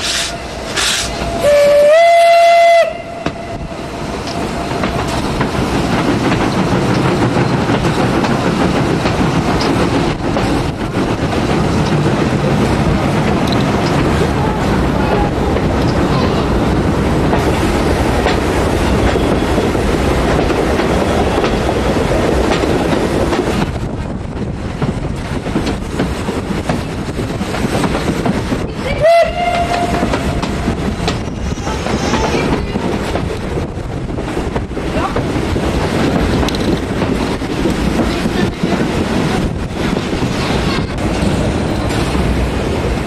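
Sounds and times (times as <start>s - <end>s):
steam locomotive whistle: 0.0s - 3.8s, 29.0s - 30.6s
train wheels on rails: 0.0s - 43.0s.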